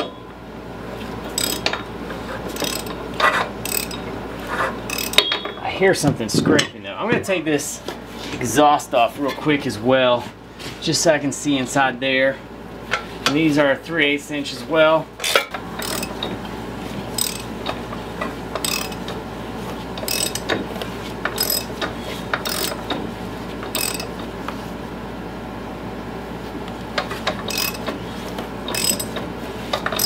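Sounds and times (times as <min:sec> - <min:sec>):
ratchet wrench clicking: 0:01.4 - 0:01.8, 0:02.5 - 0:03.0, 0:03.6 - 0:04.0, 0:04.9 - 0:05.2, 0:15.8 - 0:16.2, 0:17.2 - 0:17.5, 0:18.6 - 0:19.1, 0:20.0 - 0:20.5, 0:21.4 - 0:21.7, 0:22.4 - 0:22.8, 0:23.7 - 0:24.1, 0:27.5 - 0:27.9, 0:28.7 - 0:29.2.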